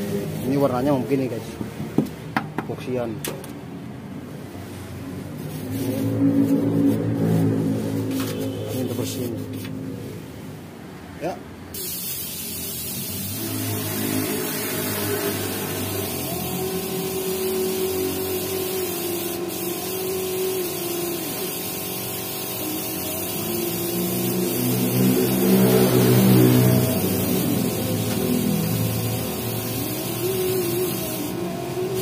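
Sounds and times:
spray gun hissing: 0:11.8 - 0:32.0.

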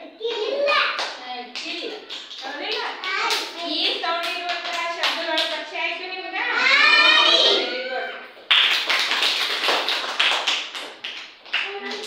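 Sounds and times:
children chanting: 0:06.5 - 0:08.2
hand claps: 0:08.4 - 0:12.0.

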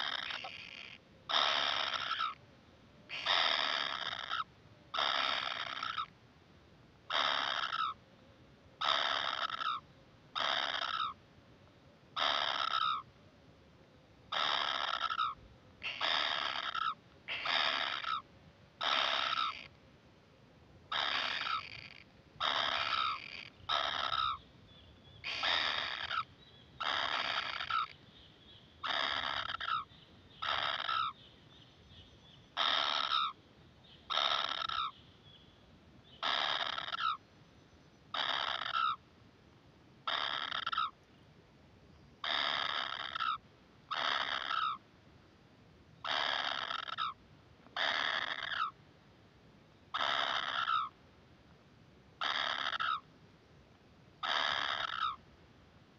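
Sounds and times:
nestlings harsh begging calls: 0:00.0 - 0:02.4, 0:03.1 - 0:06.1, 0:07.1 - 0:08.0, 0:08.8 - 0:09.8, 0:10.4 - 0:11.2, 0:12.2 - 0:13.1, 0:14.3 - 0:18.2, 0:18.8 - 0:19.7, 0:20.9 - 0:24.4, 0:25.2 - 0:28.0, 0:28.8 - 0:31.2, 0:32.5 - 0:33.4, 0:34.0 - 0:35.0, 0:36.2 - 0:37.2, 0:38.1 - 0:39.0, 0:40.1 - 0:41.0, 0:42.2 - 0:44.8, 0:46.0 - 0:47.2, 0:47.8 - 0:48.8, 0:49.9 - 0:50.9, 0:52.2 - 0:53.0, 0:54.2 - 0:55.2.

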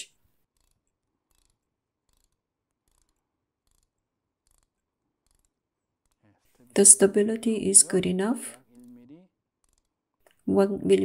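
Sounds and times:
faint ratchet clicks: 0:00.4 - 0:06.3, 0:09.6 - 0:10.0.

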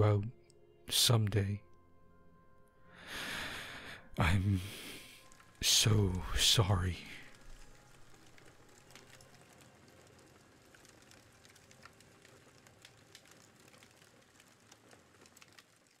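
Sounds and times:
campfire crackling: 0:03.0 - 0:16.0.

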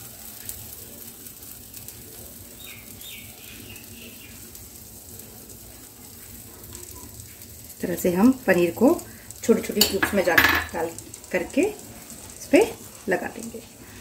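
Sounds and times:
food sizzling in a pan: 0:00.0 - 0:14.0
bird chirping: 0:02.6 - 0:04.4.

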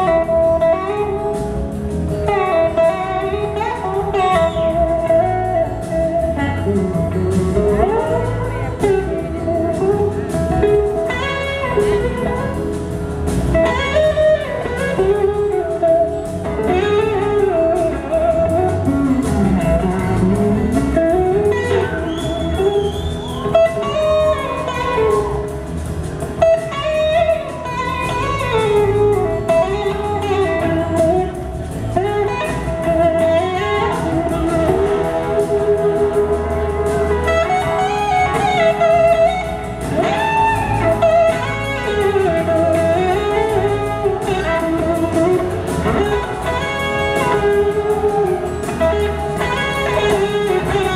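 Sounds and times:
electric slide guitar solo: 0:00.0 - 0:01.4, 0:02.2 - 0:12.7, 0:13.6 - 0:25.6, 0:26.3 - 0:50.9
bass: 0:00.0 - 0:50.9
drums: 0:00.0 - 0:50.9.

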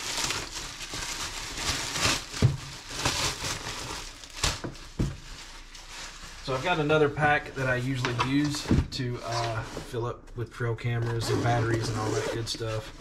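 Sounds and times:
packaging crinkling and rustling: 0:00.0 - 0:10.0.

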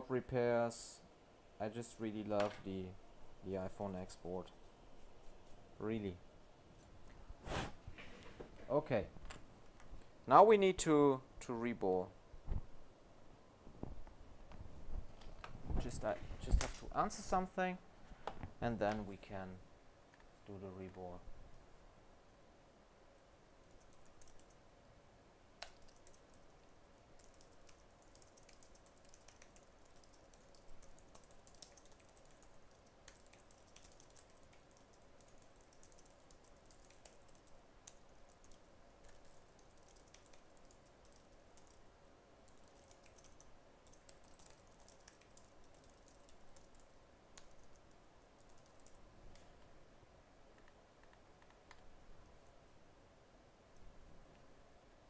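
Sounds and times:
keyboard typing: 0:23.6 - 0:24.6, 0:25.6 - 0:41.8, 0:42.4 - 0:49.5.

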